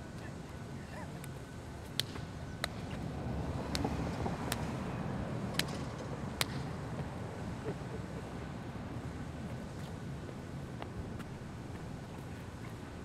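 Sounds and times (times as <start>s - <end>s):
street traffic rumble: 0.0s - 13.0s.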